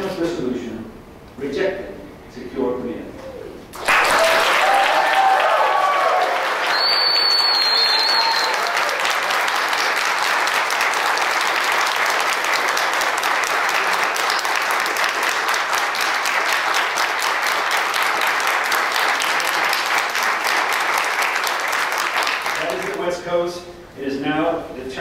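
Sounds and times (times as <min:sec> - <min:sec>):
audience applause: 0:03.8 - 0:23.0.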